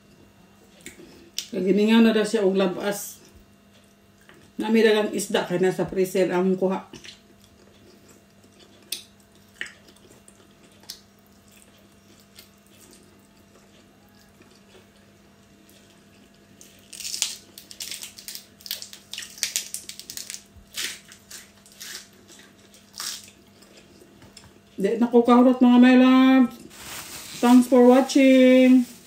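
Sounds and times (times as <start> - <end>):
faint steady hum: 0.0 - 29.0
lettuce crackling as eaten: 7.0 - 24.6.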